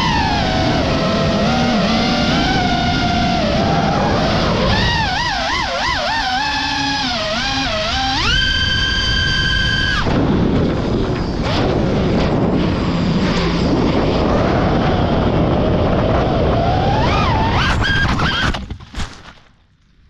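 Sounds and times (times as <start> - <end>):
drone motors whining: 0.0 - 18.8
rushing air noise: 8.2 - 18.2.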